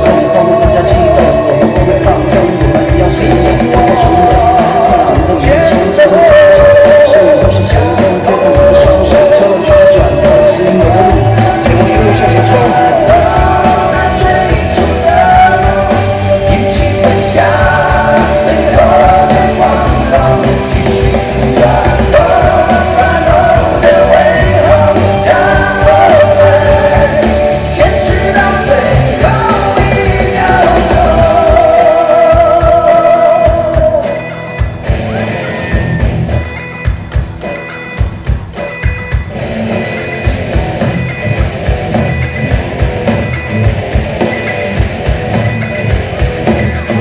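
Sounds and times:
man singing into microphone: 0.0 - 34.4
amplified band music: 0.0 - 47.0.

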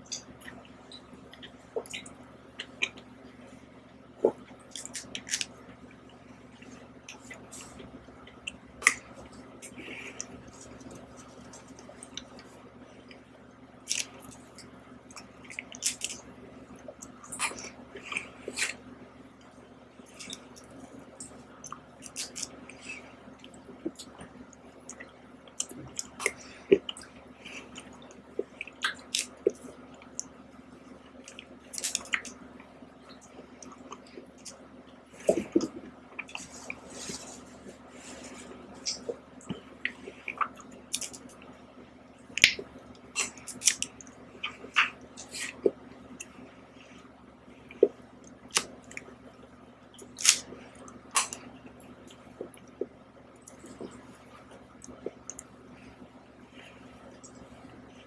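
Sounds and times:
faint steady hum: 0.0 - 58.0
wet chewing and lip smacks: 0.1 - 3.1, 20.1 - 30.3, 38.1 - 41.5, 42.3 - 46.4.

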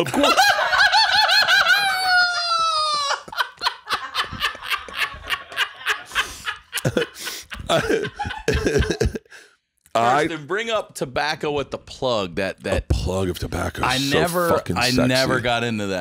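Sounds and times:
man laughing: 0.0 - 9.4.

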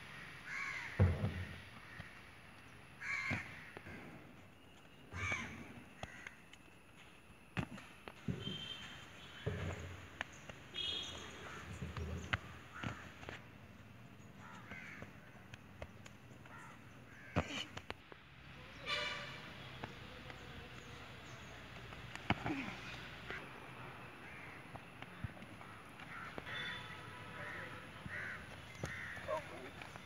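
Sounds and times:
crows cawing: 0.1 - 2.2, 3.0 - 4.1, 5.1 - 6.4, 12.4 - 13.2, 14.4 - 15.2, 16.5 - 17.6, 24.2 - 24.9, 25.6 - 30.0.

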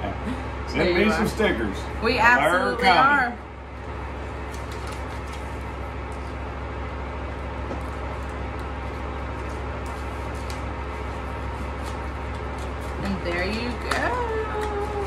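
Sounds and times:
room hum and hiss: 0.0 - 15.0
paper rustling: 4.4 - 6.4, 7.8 - 15.0.

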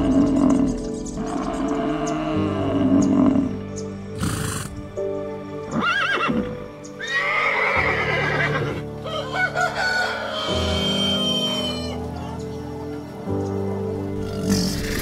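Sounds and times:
background music: 0.0 - 15.0
horse whinnying: 5.7 - 8.8
rooster crowing: 9.0 - 12.0.

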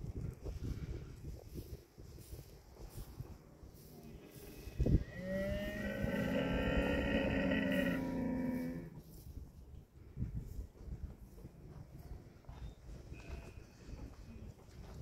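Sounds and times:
camel calling: 4.1 - 9.0.

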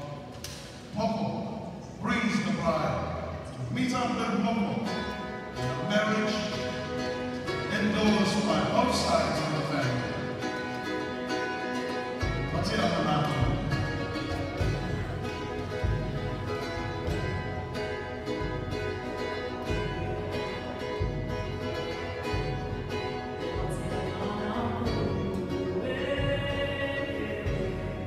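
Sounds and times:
plucked string instruments: 0.0 - 28.0
low beat: 10.1 - 28.0.

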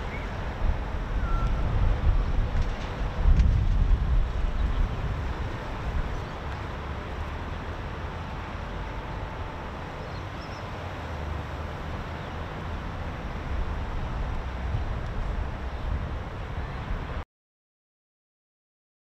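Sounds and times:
wind on microphone: 0.0 - 6.8, 12.7 - 17.2
distant road traffic rumble: 0.0 - 17.2.

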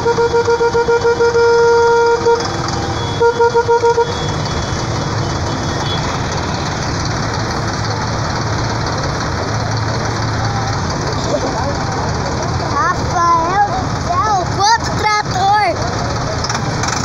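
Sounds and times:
short horn beeps: 0.0 - 6.4
vehicle horn blast: 0.0 - 6.5
tractor engines rumbling: 0.0 - 17.0.

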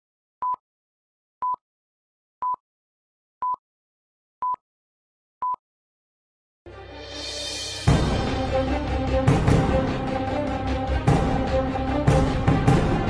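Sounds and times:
music: 6.7 - 13.0.

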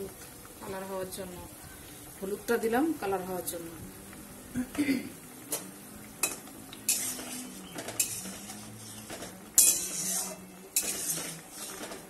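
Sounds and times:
bubbling sizzle: 0.0 - 12.0
spatula scraping metal pan: 6.9 - 12.0.

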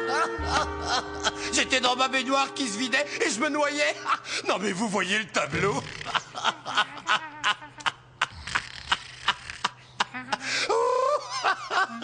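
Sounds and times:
cartoon voices laughing: 5.6 - 12.0.

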